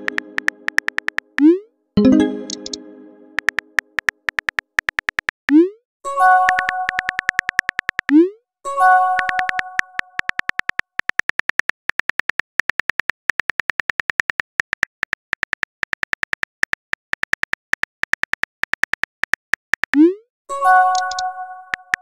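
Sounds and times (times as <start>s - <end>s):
phone keyboard clicks: 0.0s - 1.4s, 3.4s - 5.4s, 6.4s - 8.2s, 9.2s - 20.0s, 20.9s - 22.0s.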